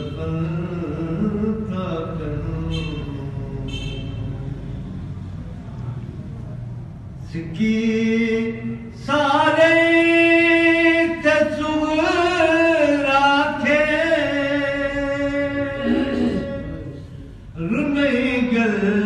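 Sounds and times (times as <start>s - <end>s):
man singing long wavering notes: 14.1s - 19.0s.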